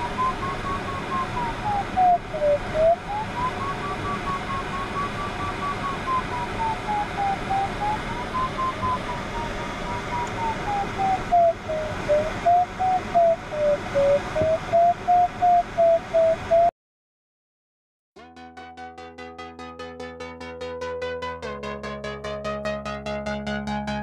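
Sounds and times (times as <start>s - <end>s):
rush of airflow: 0.0s - 16.6s
variometer beeping: 0.0s - 16.7s.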